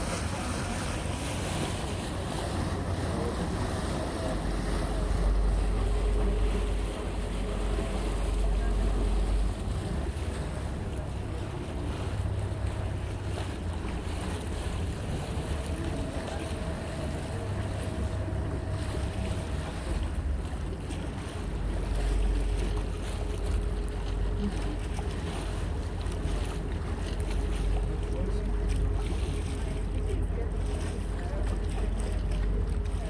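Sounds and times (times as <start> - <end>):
ferry engine drone: 0.0 - 33.0
water noise: 0.0 - 33.0
faint hum: 2.7 - 33.0.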